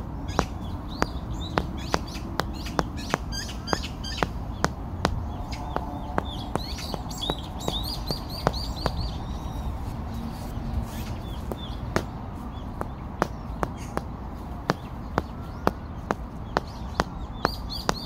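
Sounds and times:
birds chirping: 0.0 - 18.0
rubber mallet tapping bricks: 0.4 - 9.0, 12.7 - 18.0.

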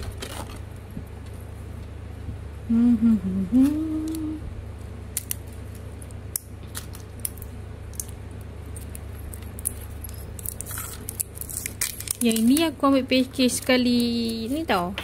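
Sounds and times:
person humming: 2.6 - 4.6.

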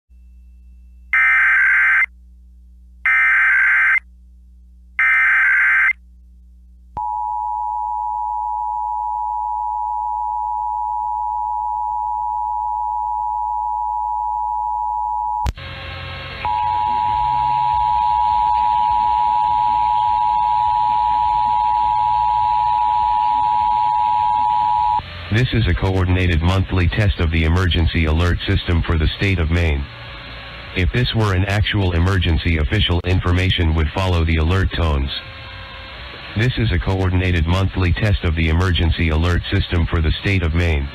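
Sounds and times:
two-tone attention signal: 16.4 - 25.0.

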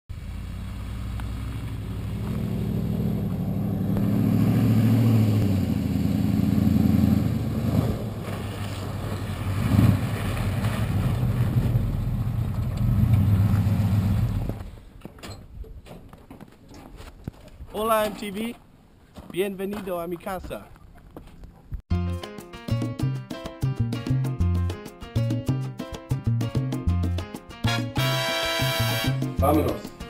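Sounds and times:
pickup truck engine: 0.1 - 14.7.

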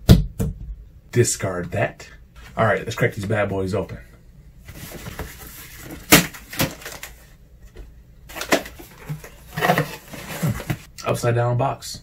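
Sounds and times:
cardboard snap: 6.1 - 7.1
cardboard box flaps rustling: 8.3 - 10.9.

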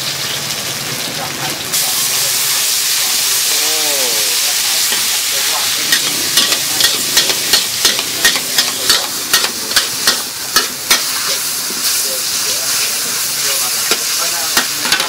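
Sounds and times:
noodles sizzling in a wok: 0.0 - 15.0
metal utensils clacking on wok: 4.8 - 11.4, 13.8 - 15.0.

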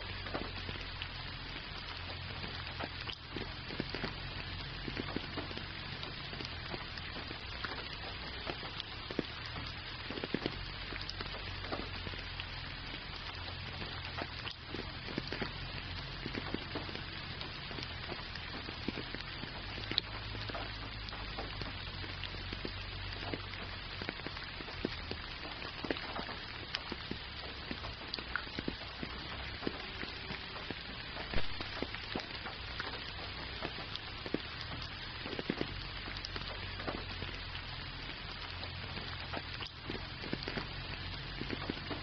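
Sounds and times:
rain hissing: 0.0 - 42.0
raindrops ticking: 0.0 - 42.0.

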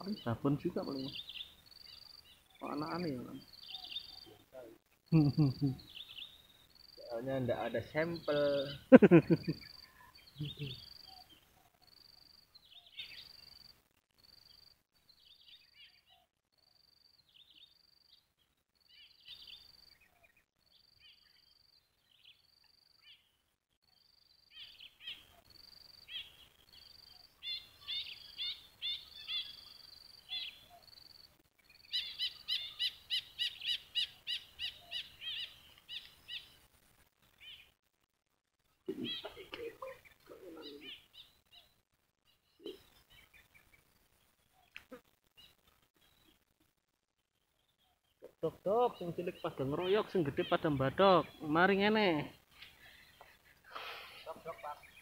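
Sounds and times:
songbirds calling: 0.0 - 37.8, 38.7 - 55.0.

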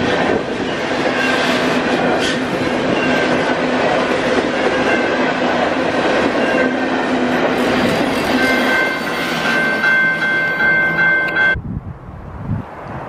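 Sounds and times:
train wheels rolling on rail: 0.0 - 11.6
high steady ringing tone: 6.3 - 11.6.

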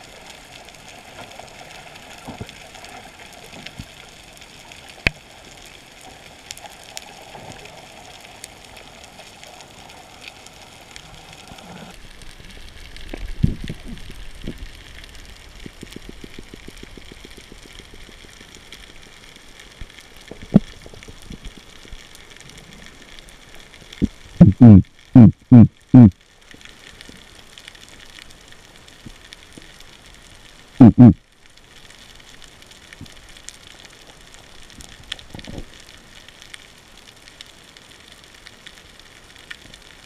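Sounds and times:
crackles and clicks: 0.0 - 40.0
underwater hiss: 6.7 - 12.0
loud deep pulses: 24.4 - 26.1.

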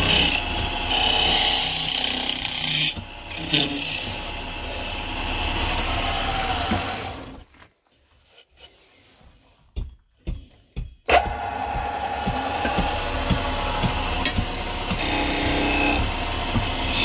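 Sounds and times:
faint lathe hum: 0.0 - 7.4, 11.1 - 17.0
lathe tool scraping wood: 0.0 - 7.4, 11.1 - 17.0.

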